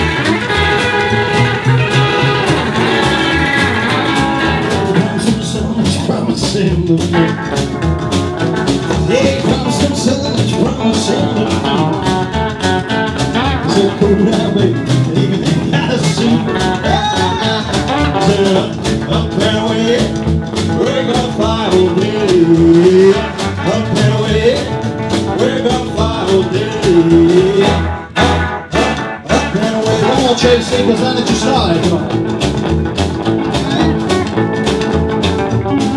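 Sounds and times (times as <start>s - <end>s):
driving guitar: 0.0s - 35.9s
rockabilly band playing: 0.0s - 35.9s
man singing: 4.4s - 7.5s, 8.9s - 28.3s, 29.1s - 32.3s, 33.4s - 34.7s.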